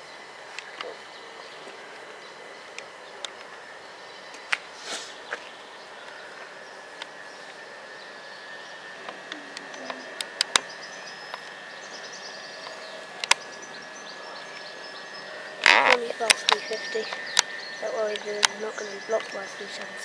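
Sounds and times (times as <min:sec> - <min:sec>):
faint high whine: 0:00.0 - 0:20.0
noise haze: 0:00.0 - 0:20.0
sharp clicks: 0:09.1 - 0:10.7, 0:12.6 - 0:13.4, 0:15.6 - 0:20.0.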